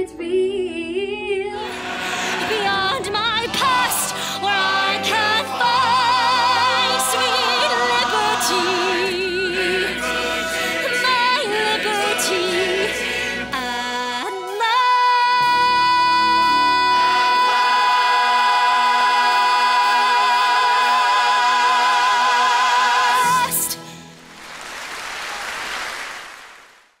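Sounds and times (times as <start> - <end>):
audience applause: 24.1 - 27.0.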